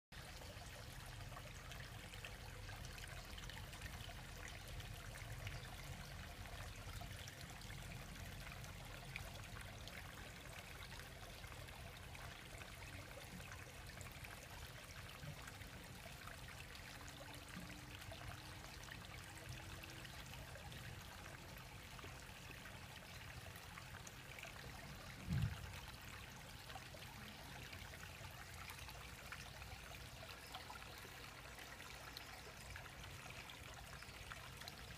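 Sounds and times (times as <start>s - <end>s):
water trickling in pond: 0.1s - 34.9s
low thump: 25.2s - 25.6s.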